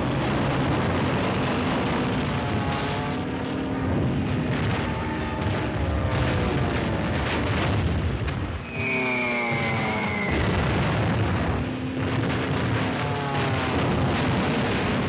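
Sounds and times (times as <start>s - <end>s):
aircraft engine drone: 0.0s - 15.0s
high engine whine falling: 0.0s - 15.0s
explosion booms: 9.6s - 15.0s.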